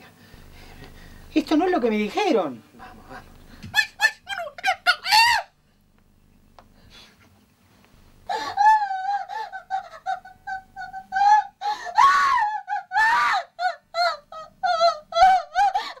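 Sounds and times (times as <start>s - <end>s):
woman screaming: 3.7s - 5.5s, 8.3s - 16.0s
woman wailing and sobbing: 3.7s - 5.5s, 8.3s - 16.0s.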